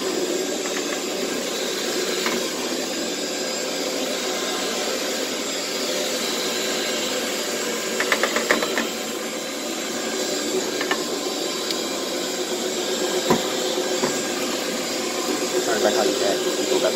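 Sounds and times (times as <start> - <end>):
carpet scrubbing machine running: 0.0 - 16.9.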